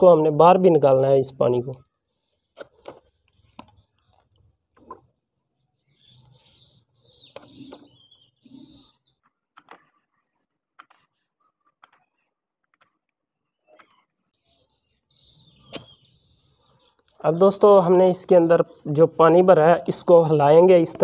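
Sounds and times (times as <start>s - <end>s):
syringe clicks and squeaks: 2.4s - 5.2s, 7.3s - 14.3s.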